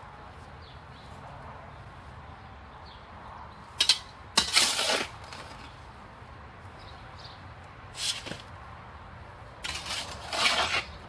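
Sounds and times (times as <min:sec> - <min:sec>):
low background noise: 0:00.0 - 0:11.0
shovel scraping concrete: 0:03.8 - 0:05.7, 0:08.0 - 0:08.5, 0:09.6 - 0:11.0.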